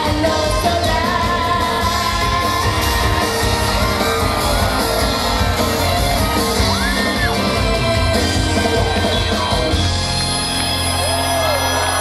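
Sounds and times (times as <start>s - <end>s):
woman singing into a microphone: 0.0s - 3.8s
live rock band playing: 0.0s - 12.0s
crowd shouting: 1.9s - 12.0s.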